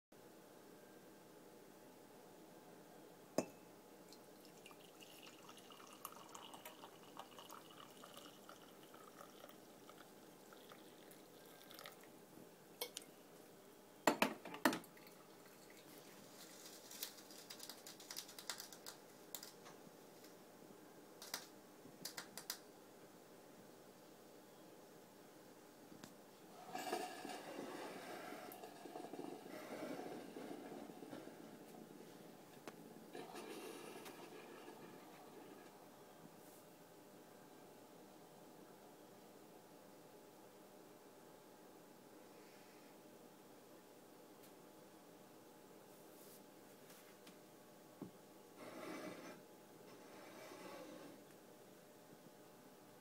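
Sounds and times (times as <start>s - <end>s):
drink pouring into a mug: 4.1s - 12.1s, 14.9s - 16.2s, 26.6s - 31.4s, 33.2s - 35.6s.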